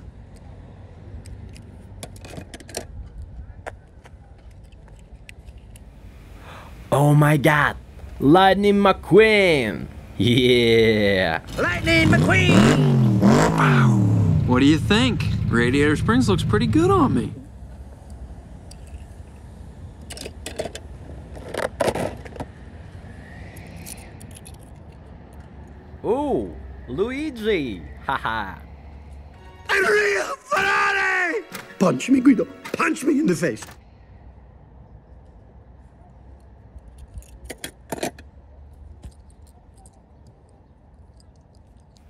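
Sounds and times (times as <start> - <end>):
light clicks of toy cars: 0.2 - 6.0, 23.2 - 25.8, 36.2 - 42.0
low steady rumble: 13.1 - 20.0
metal toy cars clicking: 20.0 - 22.6, 23.5 - 25.8, 36.7 - 42.0.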